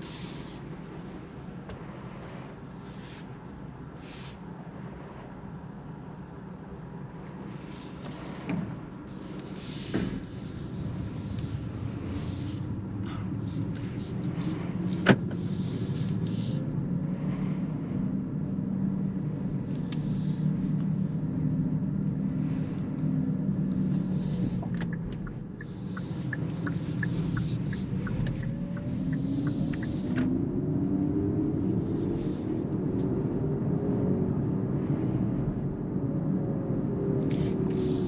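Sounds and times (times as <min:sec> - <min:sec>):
low road rumble: 0:00.0 - 0:38.0
turn signal ticking: 0:23.8 - 0:30.3.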